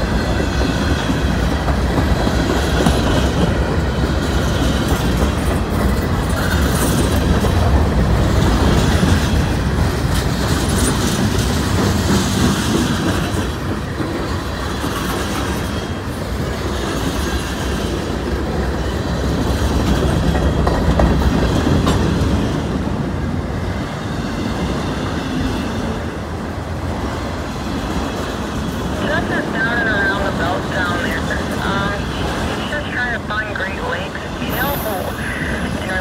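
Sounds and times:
train wheels rumbling on rails: 0.0s - 36.0s.

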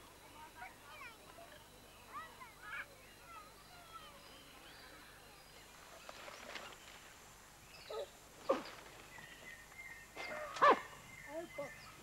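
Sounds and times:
faint steady high tone: 0.0s - 5.8s.

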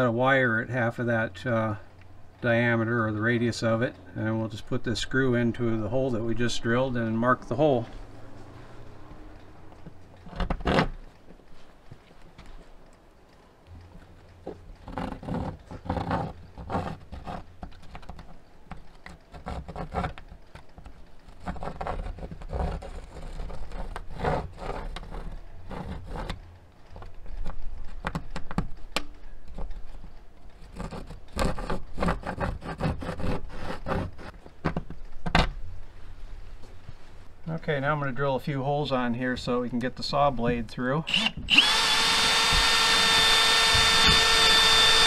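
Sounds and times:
pencil scratching on plywood: 14.9s - 18.2s, 19.0s - 20.2s, 21.3s - 26.4s, 30.6s - 34.4s.

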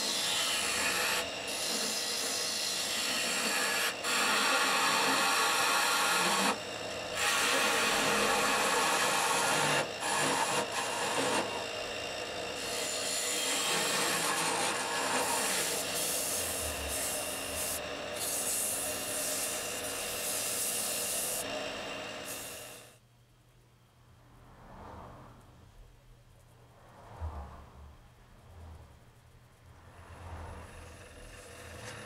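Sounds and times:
sandpaper rasping on spinning wood: 0.0s - 6.6s, 7.2s - 11.6s, 12.6s - 21.5s
turning tool cutting wood: 0.0s - 23.0s, 30.4s - 32.0s
wood lathe spinning: 0.0s - 23.0s, 30.0s - 32.0s.

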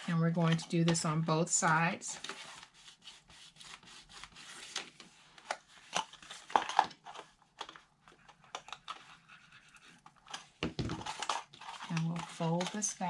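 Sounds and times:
cardstock rustling and tapping: 3.7s - 13.0s.

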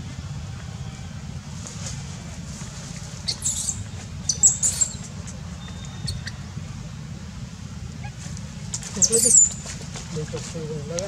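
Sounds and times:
baby monkey squeaking: 3.2s - 6.4s, 8.9s - 9.7s.

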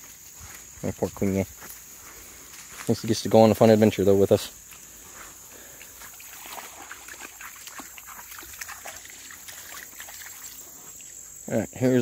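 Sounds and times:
high insect drone: 0.0s - 12.0s
dog paws splashing in water: 5.6s - 11.2s.

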